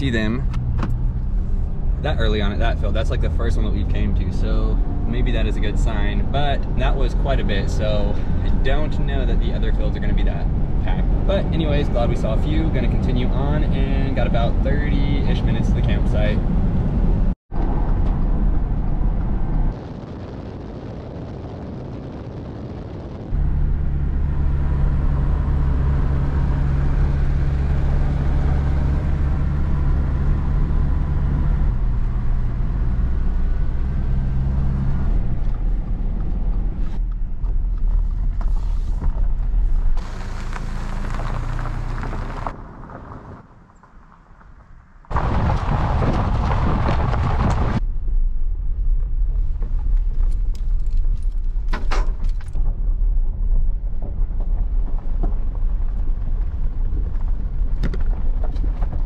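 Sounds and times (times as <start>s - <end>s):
car engine and tyre drone: 0.0s - 59.0s
gravel clicks under tyres: 31.7s - 47.9s, 48.5s - 59.0s.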